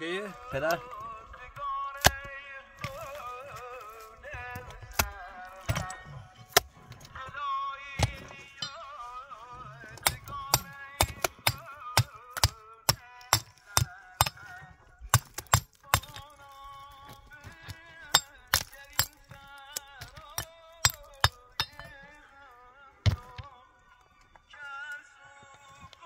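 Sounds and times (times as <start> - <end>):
background music: 0.0 - 26.0
hammer clinking on stone: 5.7 - 7.0, 8.0 - 9.3, 9.9 - 14.5, 15.1 - 16.4, 17.1 - 22.2.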